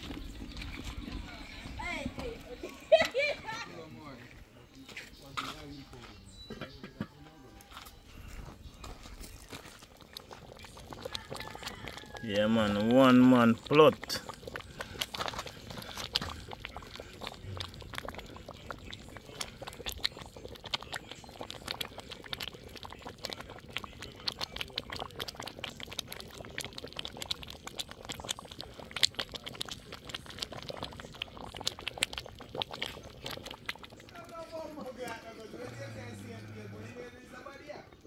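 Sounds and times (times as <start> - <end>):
pot bubbling and spitting: 0.0 - 4.2, 6.5 - 38.0.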